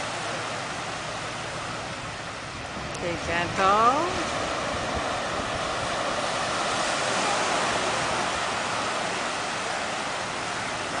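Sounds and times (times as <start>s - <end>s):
waves washing onto sandy beach: 0.0s - 11.0s.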